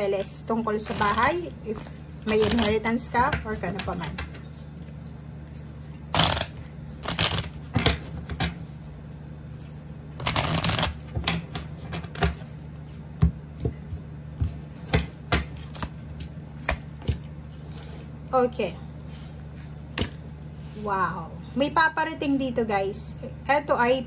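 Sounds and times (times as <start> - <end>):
cards shuffling: 6.2 - 7.6, 10.2 - 11.0.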